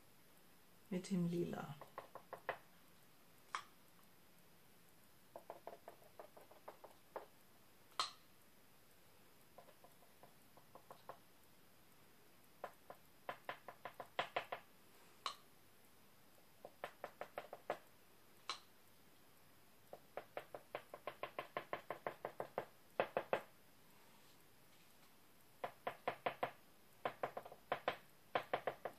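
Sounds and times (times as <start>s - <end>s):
sharp single clicks: 7.9s - 8.2s.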